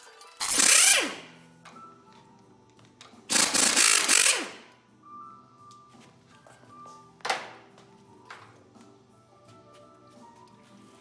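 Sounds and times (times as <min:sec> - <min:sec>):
pneumatic impact wrench whine: 0:00.4 - 0:01.4, 0:03.3 - 0:04.7.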